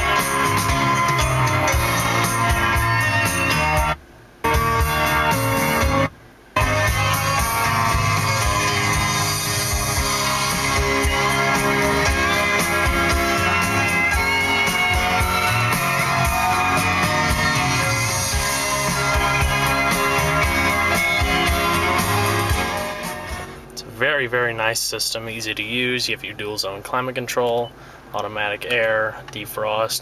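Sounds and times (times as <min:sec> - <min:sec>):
bass-heavy music in car: 0:00.0 - 0:23.8.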